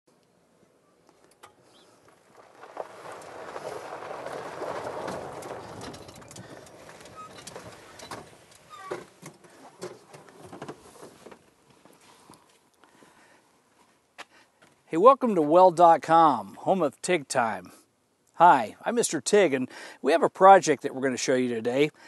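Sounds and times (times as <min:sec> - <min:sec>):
golf cart rolling: 0:01.1 - 0:12.0.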